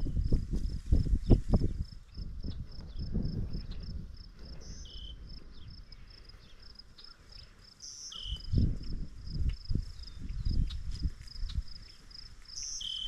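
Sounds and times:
insect chirping: 0.0 - 13.0
short bird-like chirps: 7.0 - 8.6, 12.6 - 13.0.

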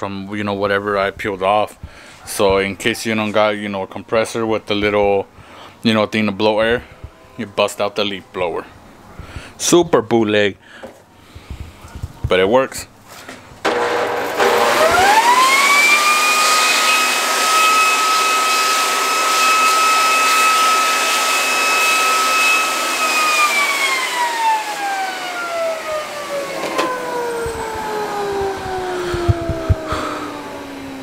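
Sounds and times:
leaf blower motor whine: 13.6 - 31.0
rush of air: 27.4 - 31.0.

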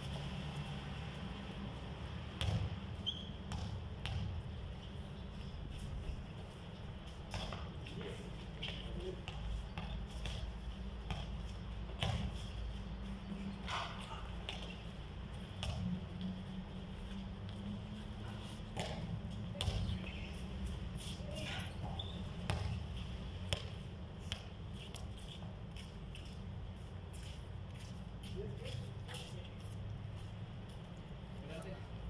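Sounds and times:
basketball bouncing on concrete: 2.4 - 2.8, 3.4 - 4.5, 8.6 - 12.4, 15.6 - 15.9, 18.7 - 19.9, 21.8 - 24.5.

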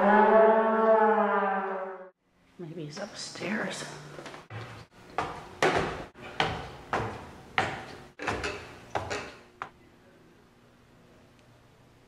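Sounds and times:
footsteps on wooden stairs: 3.0 - 9.3.

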